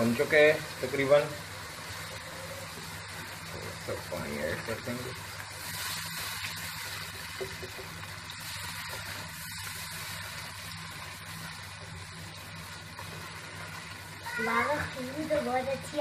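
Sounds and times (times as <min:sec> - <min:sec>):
sauce sizzling in a pot: 0:00.0 - 0:16.0.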